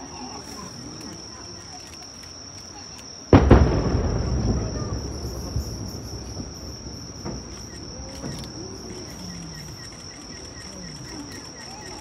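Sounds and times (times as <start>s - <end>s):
insects trilling: 0.0s - 12.0s
distant firework pops: 3.3s - 9.8s
fireworks burst rumble: 3.3s - 12.0s.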